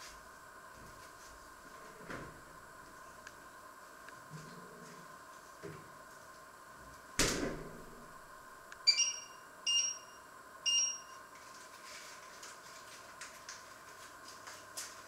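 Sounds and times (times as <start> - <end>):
high electronic beeps: 8.9 - 11.2.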